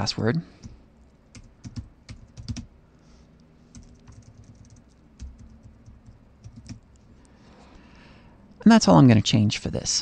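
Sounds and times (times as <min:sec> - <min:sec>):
keyboard typing: 0:00.6 - 0:02.7, 0:03.7 - 0:07.1.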